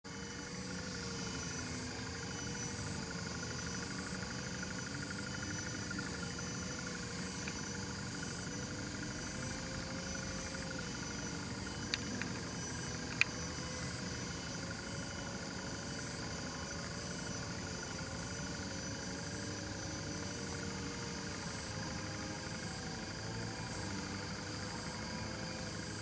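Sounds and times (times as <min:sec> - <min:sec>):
steady background hum: 0:00.1 - 0:26.0
small clicks: 0:11.8 - 0:13.4.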